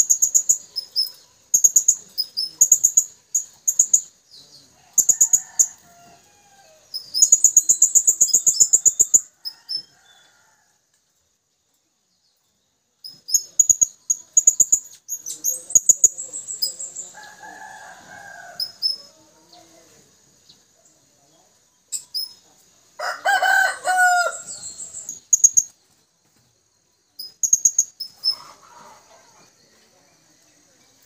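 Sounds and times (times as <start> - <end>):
rooster crowing: 4.8 - 7.0, 9.3 - 10.8, 17.1 - 19.2, 23.0 - 25.1, 28.3 - 29.6.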